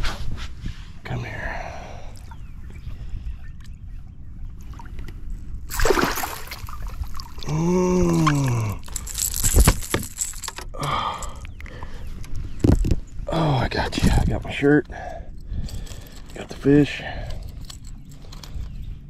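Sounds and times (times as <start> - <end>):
fish thrashing in water: 5.7 - 7.5
drawn-out vocal sound: 7.4 - 9.0
knocks and rattles: 8.3 - 10.8.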